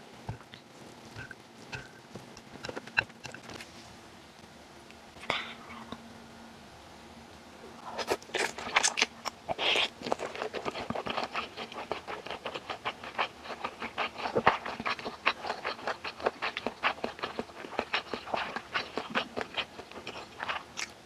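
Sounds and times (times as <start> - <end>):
wet chewing with mouth clicks: 7.8 - 21.0
noodles being slurped: 7.9 - 20.8.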